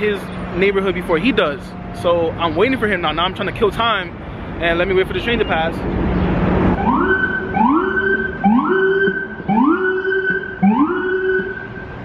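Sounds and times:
faint street noise: 0:00.0 - 0:12.0
electronic siren whooping: 0:06.8 - 0:12.0.

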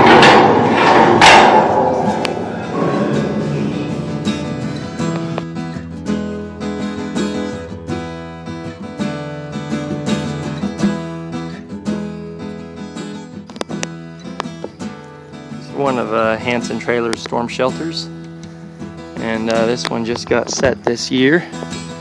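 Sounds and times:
acoustic guitar chords: 0:00.0 - 0:22.0.

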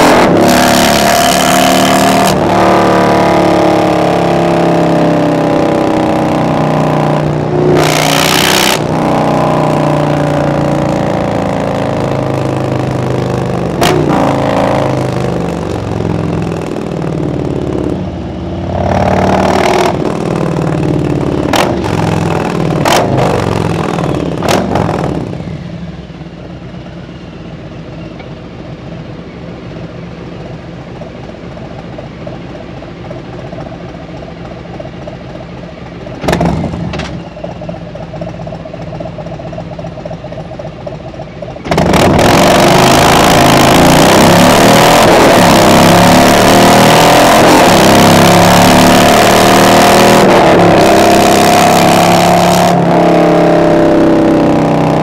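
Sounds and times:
motorcycle engine: 0:00.0 - 0:55.0
motorcycle engine bursts: 0:33.0 - 0:55.0.

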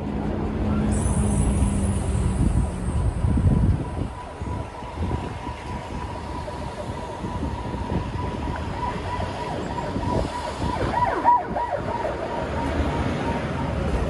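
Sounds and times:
city traffic rumbling: 0:00.0 - 0:14.0
steady high-pitched tone: 0:00.7 - 0:11.3.

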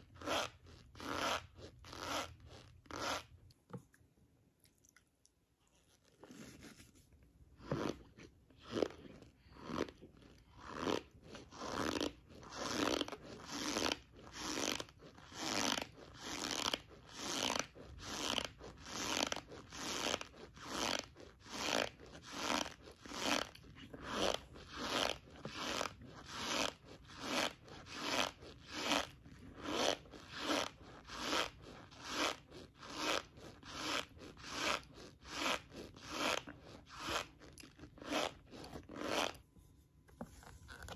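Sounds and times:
chewing crunches: 0:34.1 - 0:39.2.

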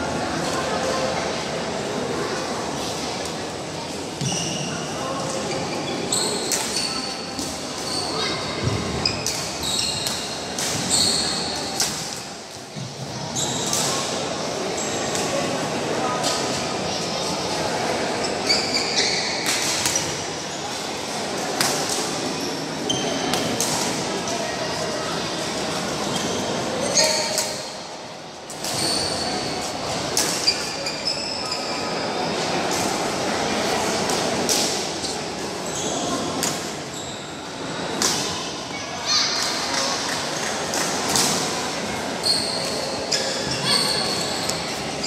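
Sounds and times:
shoes squeaking on court: 0:05.5 - 0:11.8, 0:18.2 - 0:20.1, 0:28.6 - 0:32.1, 0:35.0 - 0:37.4, 0:42.2 - 0:45.0.

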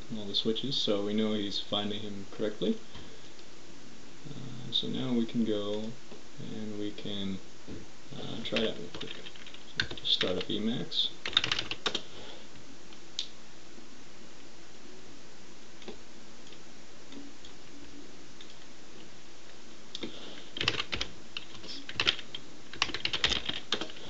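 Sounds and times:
computer keyboard typing: 0:08.5 - 0:10.5, 0:11.2 - 0:12.0, 0:20.6 - 0:24.0.

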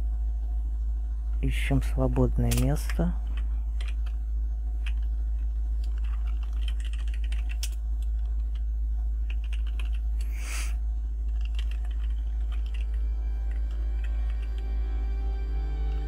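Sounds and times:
steady low hum: 0:00.0 - 0:16.0
keyboard typing: 0:02.4 - 0:04.2, 0:04.8 - 0:10.4, 0:11.3 - 0:14.8.

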